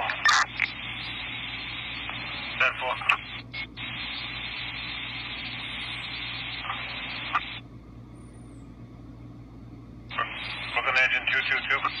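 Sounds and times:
radio static hiss: 0:00.0 - 0:07.6, 0:10.1 - 0:12.0
low steady hum: 0:00.0 - 0:12.0.

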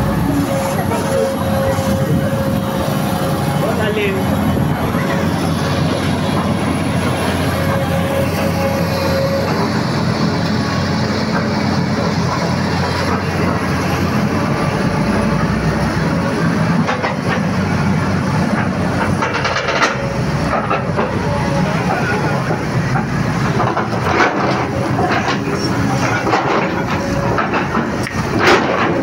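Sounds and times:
excavator diesel engine running: 0:00.0 - 0:29.0.

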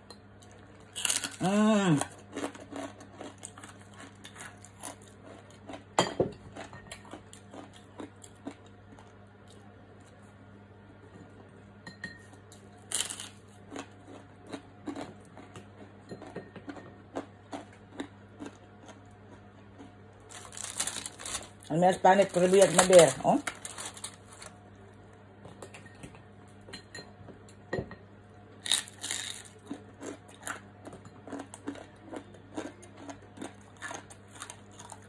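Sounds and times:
low steady hum: 0:00.0 - 0:35.0
dishes clicking and clinking: 0:06.0 - 0:07.1, 0:25.5 - 0:28.0.

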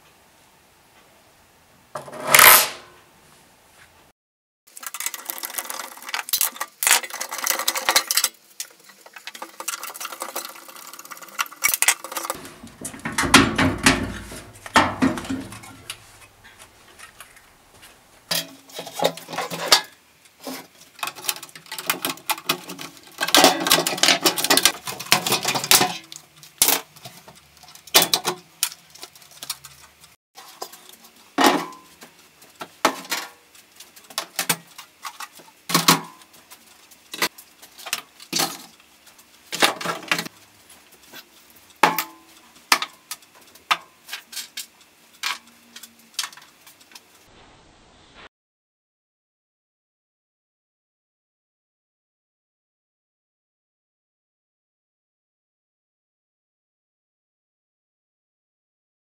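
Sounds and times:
knocks and scraping: 0:02.0 - 0:03.0, 0:05.4 - 0:33.3
plastic and metal parts rattling: 0:04.7 - 0:16.1, 0:18.3 - 0:31.9.

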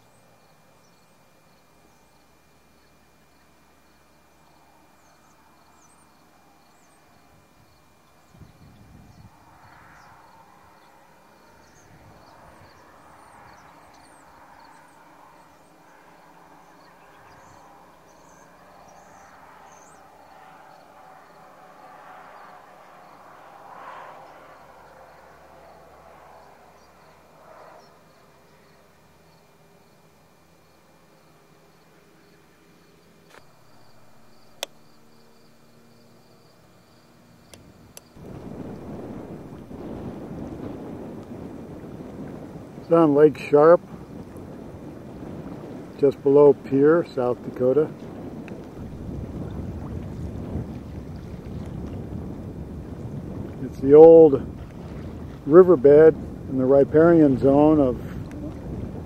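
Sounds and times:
insects chirping: 0:00.0 - 0:59.0
wind noise on microphone: 0:06.6 - 0:21.4, 0:33.3 - 0:59.0
soft rushing noise: 0:33.3 - 0:59.0.

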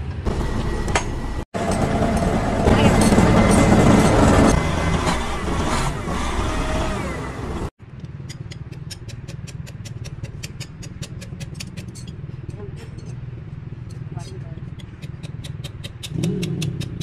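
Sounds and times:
heavy machinery running: 0:00.0 - 0:07.7.

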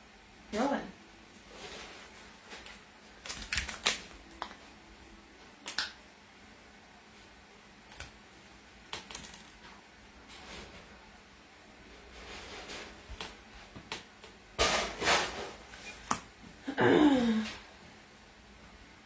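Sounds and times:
plastic pouches crinkling: 0:02.6 - 0:04.6.

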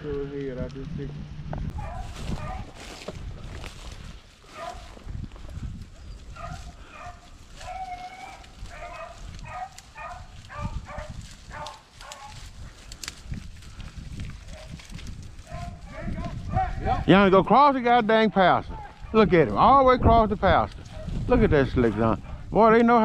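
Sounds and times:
low rumble: 0:00.0 - 0:04.0
hounds baying: 0:01.7 - 0:02.8, 0:04.4 - 0:05.0, 0:05.9 - 0:12.8, 0:14.4 - 0:14.8, 0:15.4 - 0:17.1, 0:18.5 - 0:19.4, 0:20.8 - 0:23.0.

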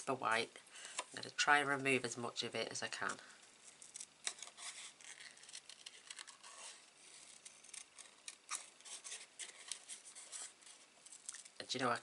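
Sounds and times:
small scissors snipping paper: 0:03.8 - 0:10.5.

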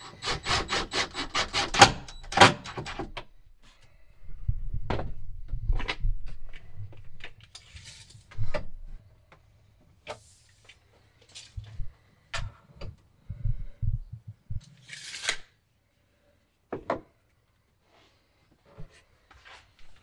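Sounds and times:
rustling or scraping: 0:06.3 - 0:08.5.

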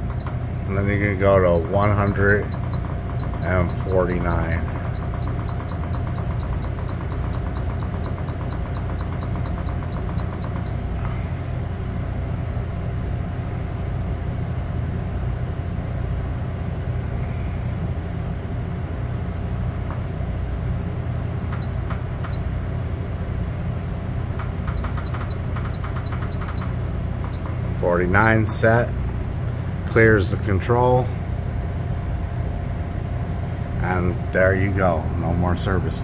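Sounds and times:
low machinery hum: 0:00.0 - 0:36.0
control panel beeping: 0:01.5 - 0:10.8, 0:24.7 - 0:28.4.

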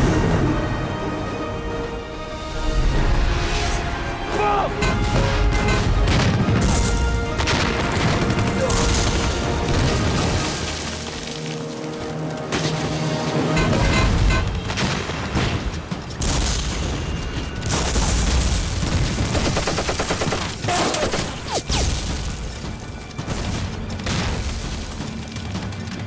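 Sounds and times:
shell explosions: 0:04.9 - 0:10.4
gunfire bursts: 0:17.6 - 0:22.0.

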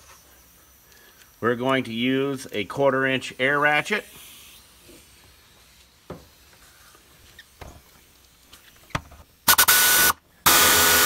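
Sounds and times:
air ratchet whining: 0:08.5 - 0:11.0.

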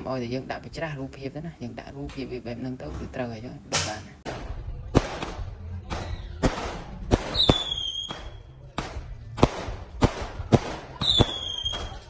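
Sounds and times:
firework bangs: 0:04.2 - 0:12.0
firework whistles: 0:07.3 - 0:08.4, 0:11.0 - 0:12.0.

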